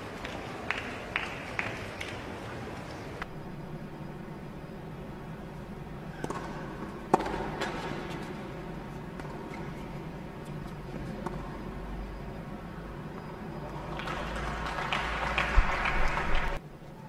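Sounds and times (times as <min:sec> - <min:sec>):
steady background hum: 0:00.0 - 0:17.0
tennis ball struck by rackets: 0:06.1 - 0:08.4.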